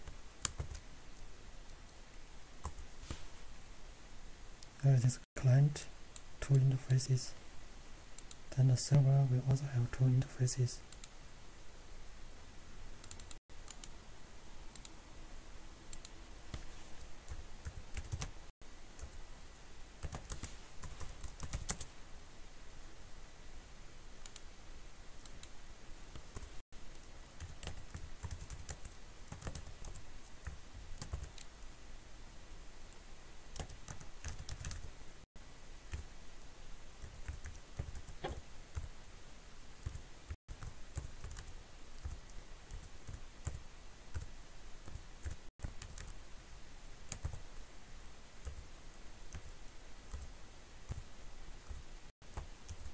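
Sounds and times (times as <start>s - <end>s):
typing on computer keyboard: 0.4s - 0.8s, 17.6s - 18.3s, 20.0s - 21.9s, 26.2s - 31.5s, 33.6s - 34.8s.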